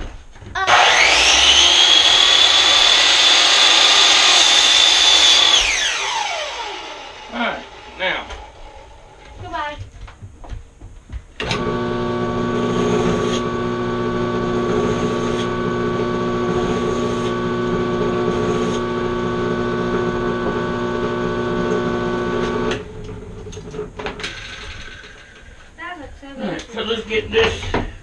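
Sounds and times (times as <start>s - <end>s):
electric machine motor running: 0.7s - 9.3s, 11.4s - 23.8s.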